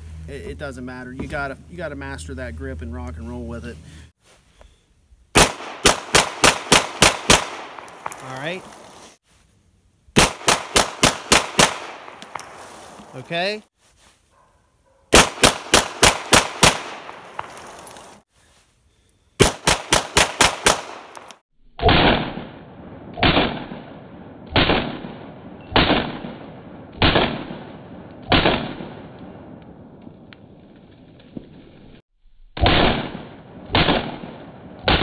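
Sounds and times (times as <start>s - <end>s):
duller gunshots: 5.4s - 7.9s, 10.2s - 12.2s, 15.1s - 17.4s, 19.4s - 21.1s, 21.8s - 29.2s, 32.6s - 35.0s
pistol shots: 5.4s - 8.2s, 10.2s - 12.5s, 15.1s - 17.8s, 19.4s - 29.3s, 32.6s - 35.0s.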